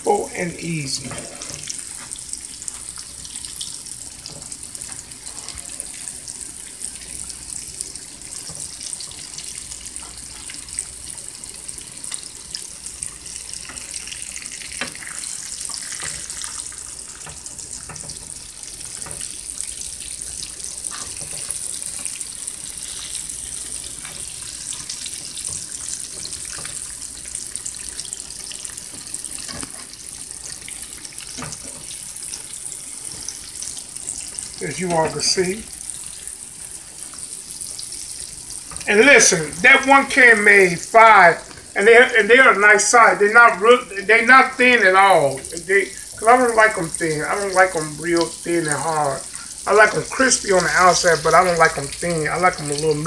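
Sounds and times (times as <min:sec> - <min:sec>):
croquettes frying in hot oil: 0:00.2 - 0:40.6, 0:45.2 - 0:53.0.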